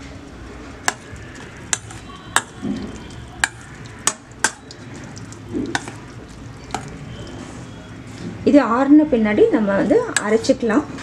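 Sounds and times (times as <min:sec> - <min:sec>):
spoon stirring in metal bowl: 0:00.8 - 0:07.8.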